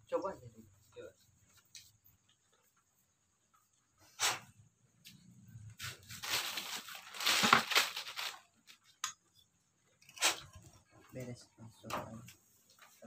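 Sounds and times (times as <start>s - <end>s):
scraping and rustling of engine parts: 5.6s - 8.9s.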